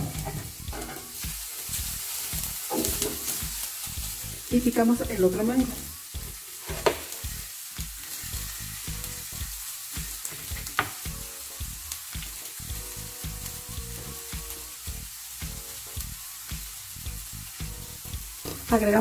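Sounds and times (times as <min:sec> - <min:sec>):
vegetables sizzling in a frying pan: 0:00.0 - 0:19.0
knife tapping on cutting board: 0:06.7 - 0:07.1.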